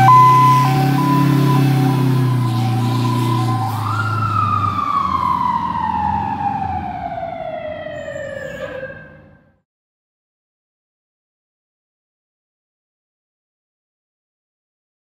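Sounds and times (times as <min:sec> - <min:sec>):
low air horn blast: 0:00.0 - 0:03.8
mechanical siren wailing: 0:00.0 - 0:09.5.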